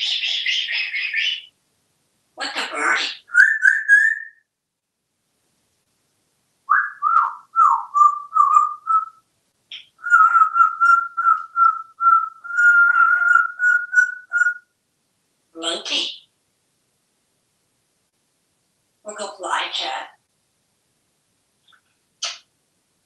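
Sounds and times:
parrot whistling: 0:03.3 - 0:04.4, 0:06.7 - 0:09.2, 0:10.0 - 0:14.6.

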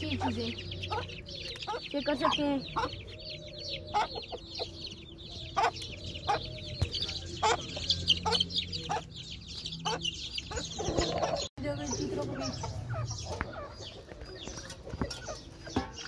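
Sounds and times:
chicks peeping: 0:00.0 - 0:16.0
hen clucking: 0:00.0 - 0:16.0.

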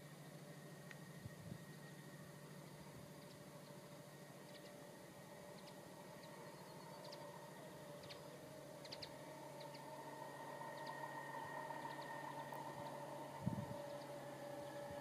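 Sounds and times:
birds chirping: 0:00.0 - 0:15.0
diesel locomotive engine drone: 0:00.0 - 0:15.0.

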